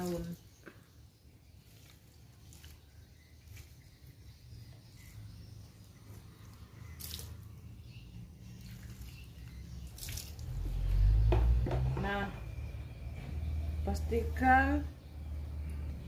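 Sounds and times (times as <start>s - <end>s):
water splashing onto leaves: 1.6s - 3.8s, 6.9s - 7.5s, 8.6s - 11.2s.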